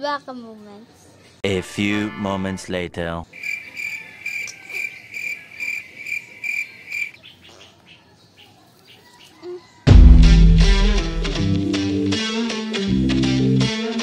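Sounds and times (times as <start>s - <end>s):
cricket chirping: 3.3s - 7.2s.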